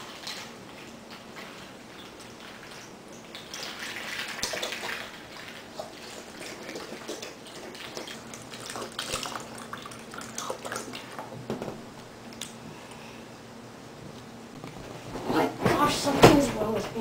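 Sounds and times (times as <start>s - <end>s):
milk pouring and splashing into bowl: 0.0s - 11.4s.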